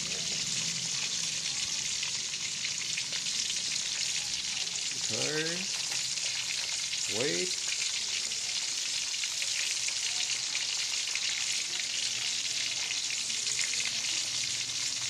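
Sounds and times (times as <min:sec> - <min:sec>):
fish sizzling in hot oil: 0:00.0 - 0:15.0.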